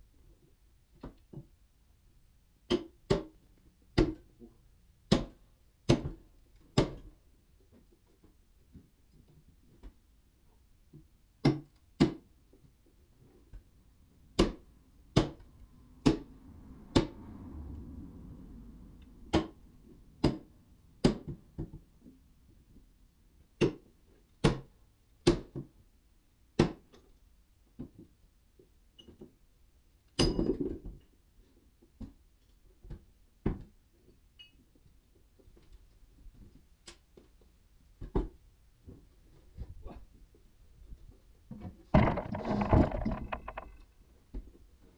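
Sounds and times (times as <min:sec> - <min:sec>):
timber knocks and bumps: 0:41.6 - 0:43.8
wooden timbers clattering: 0:42.0 - 0:43.9.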